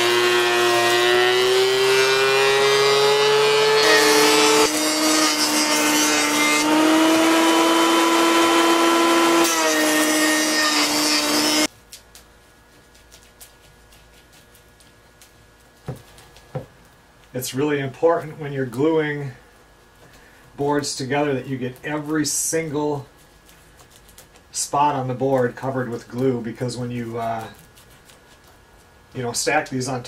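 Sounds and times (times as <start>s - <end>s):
planer motors whining: 0.0s - 11.7s.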